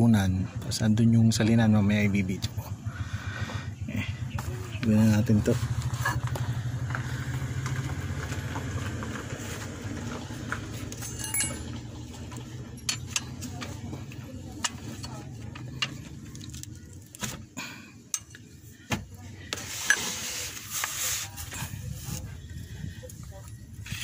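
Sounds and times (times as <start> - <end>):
low hum: 0.0 - 20.7
wrench clinking on metal plug: 10.9 - 11.8.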